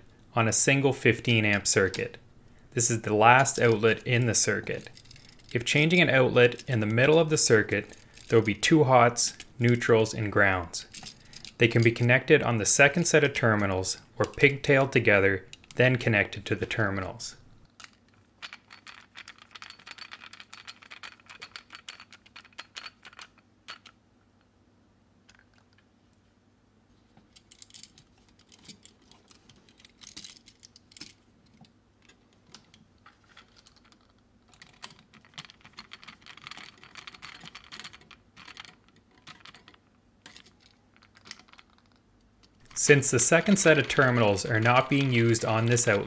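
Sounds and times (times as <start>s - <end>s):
wires being handled: 1.4s - 12.2s, 26.9s - 46.0s.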